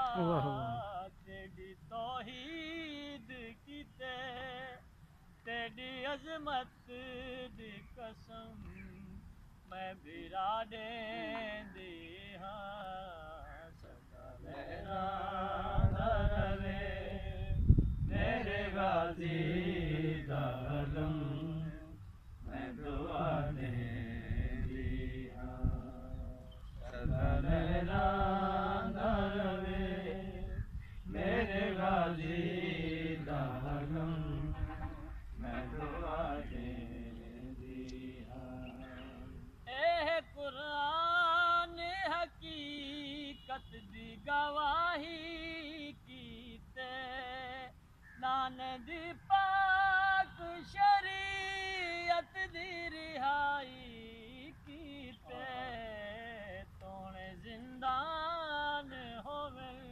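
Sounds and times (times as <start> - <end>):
person chanting a lament: 0.0 - 1.1, 55.1 - 56.6.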